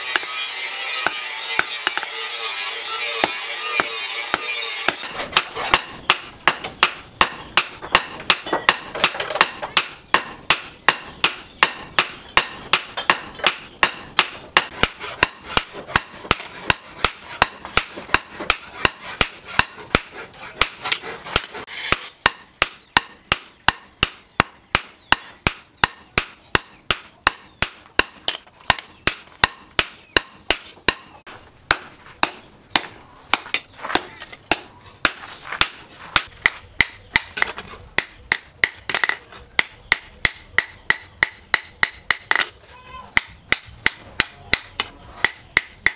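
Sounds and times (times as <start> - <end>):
hammer ringing on anvil: 0.1 - 5.1.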